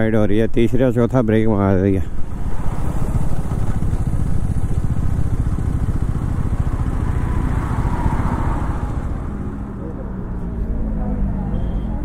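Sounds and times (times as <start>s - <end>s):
motorcycle engine at low revs: 2.0s - 10.0s.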